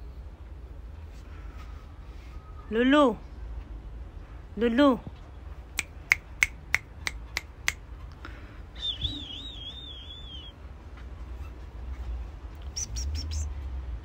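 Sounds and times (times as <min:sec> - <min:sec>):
finger snaps: 0:05.8 - 0:07.8
high warbling whistle: 0:08.8 - 0:10.6.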